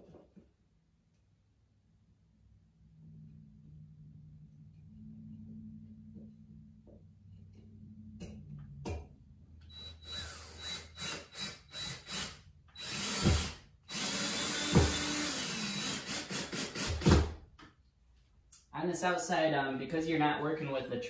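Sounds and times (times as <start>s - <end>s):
power drill driving screws: 9.7s - 17.4s.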